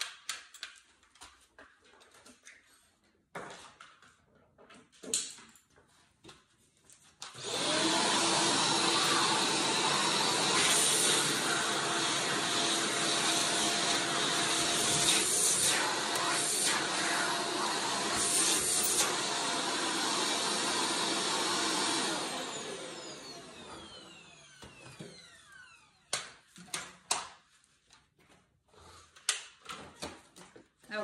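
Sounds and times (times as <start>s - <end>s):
upright vacuum running: 7.3s - 26.1s.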